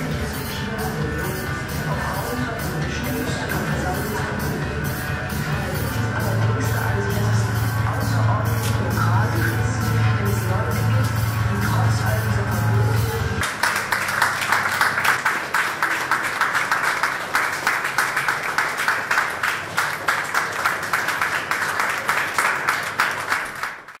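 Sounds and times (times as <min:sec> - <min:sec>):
music: 0:00.0 - 0:15.2
audience applauding: 0:13.4 - 0:24.0.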